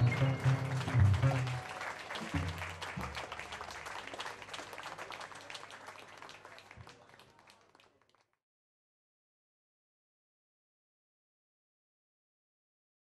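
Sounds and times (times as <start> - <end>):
low notes from jazz band: 0.0 - 1.8
audience applauding: 0.0 - 8.3.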